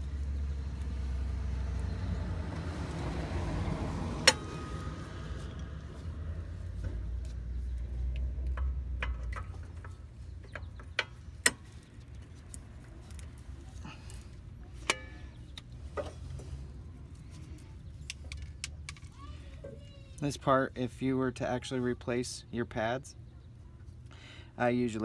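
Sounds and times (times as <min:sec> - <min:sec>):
metal clicks of brake parts: 0:04.2 - 0:04.6, 0:07.2 - 0:13.4, 0:14.1 - 0:16.5, 0:17.5 - 0:20.3.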